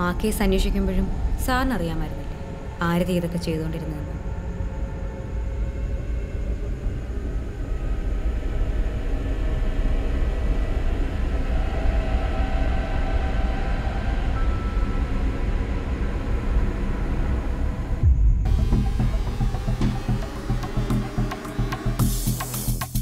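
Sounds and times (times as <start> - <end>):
low rumbling drone: 0.0 - 22.6
sustained high tones: 11.2 - 22.0.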